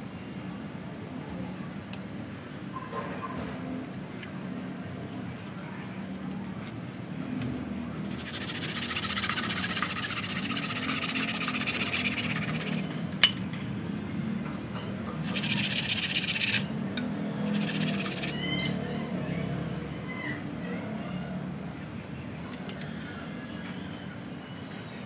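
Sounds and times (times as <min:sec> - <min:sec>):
brush scrubbing soil off roots: 0:08.0 - 0:12.9, 0:15.2 - 0:16.7, 0:17.4 - 0:18.4.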